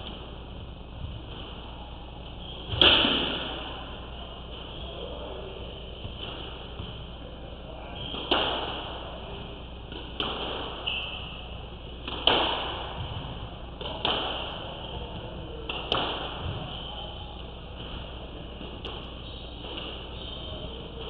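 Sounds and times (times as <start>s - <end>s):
squash ball cracking off racquets: 12.0s - 14.7s.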